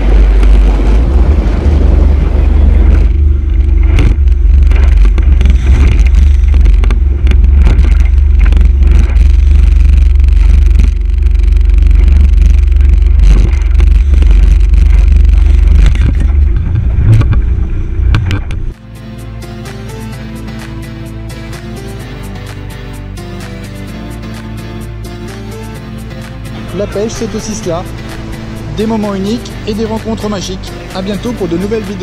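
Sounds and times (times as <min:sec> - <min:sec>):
wind buffeting microphone: 0:00.0 - 0:18.7
boat motor: 0:00.0 - 0:32.0.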